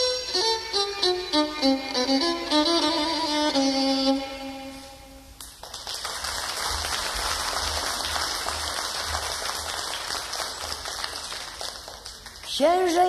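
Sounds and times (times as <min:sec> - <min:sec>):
audience applause: 0:05.6 - 0:12.6.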